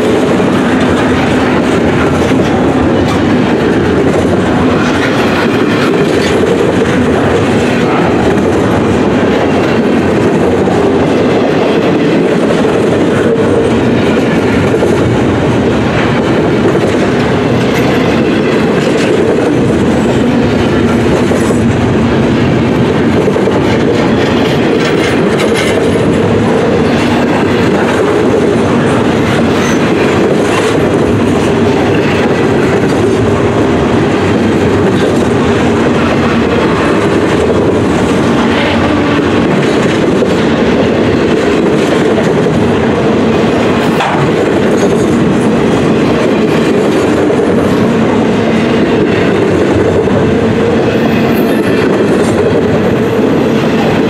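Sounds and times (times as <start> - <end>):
freight train wheels rumbling: 0.0 - 54.0.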